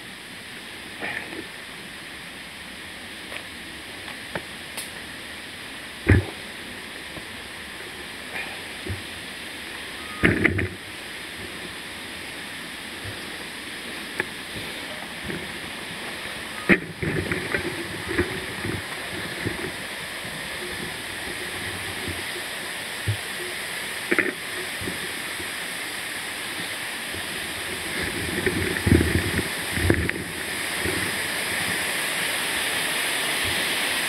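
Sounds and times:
stream and waterfall rushing: 0.0s - 34.0s
bike clattering over rocks: 6.0s - 6.4s, 16.6s - 19.8s.

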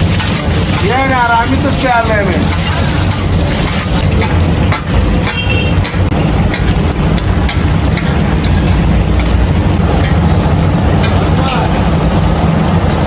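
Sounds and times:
metal spatula scraping pan: 0.0s - 6.7s
egg sizzling in oil: 0.0s - 13.0s
low rumble: 2.4s - 13.0s.

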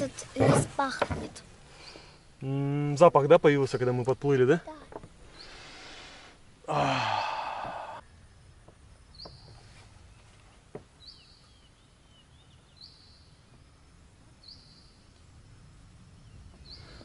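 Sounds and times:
faint bird chirps: 1.7s - 2.7s, 3.6s - 6.0s, 7.0s - 17.0s.

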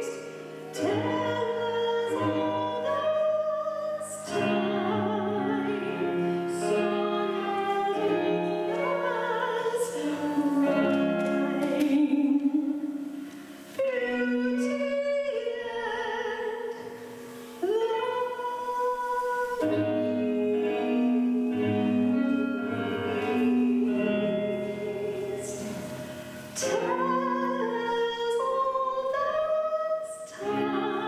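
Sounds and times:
instrumental accompaniment: 0.0s - 31.0s
person singing: 0.0s - 31.0s.

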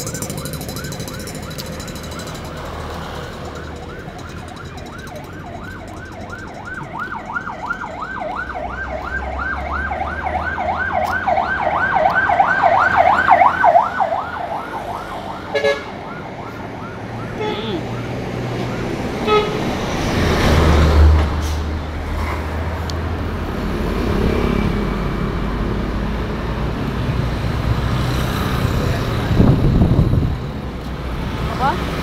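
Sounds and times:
vehicle siren yelping: 0.0s - 19.8s
road traffic rumble: 0.0s - 32.0s.

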